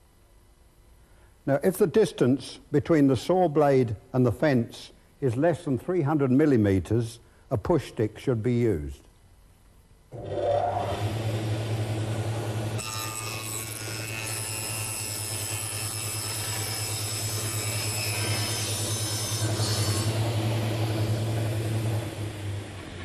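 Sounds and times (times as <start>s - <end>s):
saw cutting whine: 10.2s - 22.6s
bench saw running: 10.2s - 22.8s.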